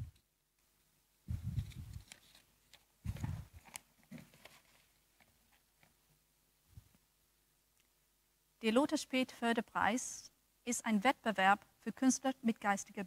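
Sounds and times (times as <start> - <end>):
microphone handling bumps: 1.3 - 2.0, 3.0 - 3.6
papers rustling: 1.6 - 6.0.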